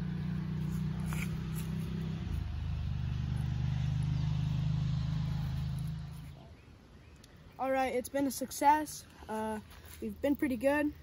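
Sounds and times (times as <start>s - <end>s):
low engine drone: 0.0s - 7.5s.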